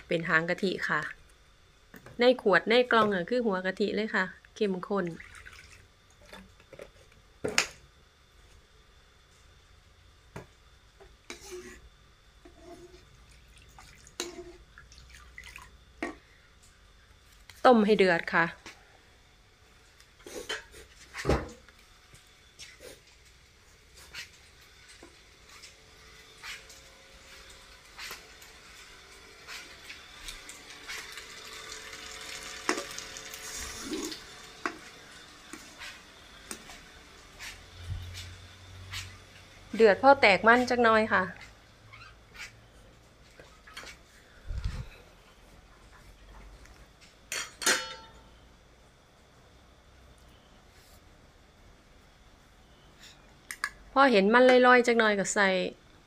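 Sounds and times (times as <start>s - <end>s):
liquid dripping and splashing: 5.2s - 5.9s, 13.3s - 14.2s, 14.8s - 15.7s
metal ladle stirring in pan: 11.3s - 11.8s, 14.2s - 14.6s
liquid heating hiss in pan: 22.5s - 39.4s.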